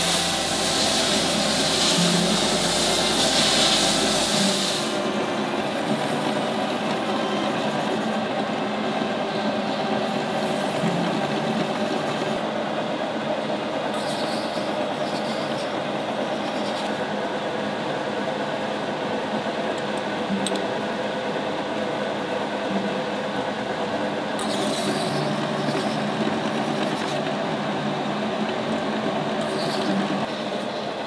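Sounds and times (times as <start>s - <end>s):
sharp hiss: 0.0s - 5.0s
workshop machinery humming: 0.0s - 31.0s.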